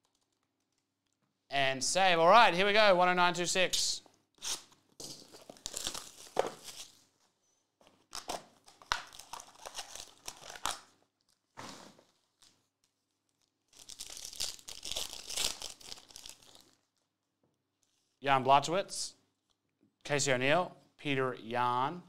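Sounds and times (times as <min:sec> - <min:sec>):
foil packs crinkling and tearing: 0:05.1 - 0:07.1, 0:08.1 - 0:17.0.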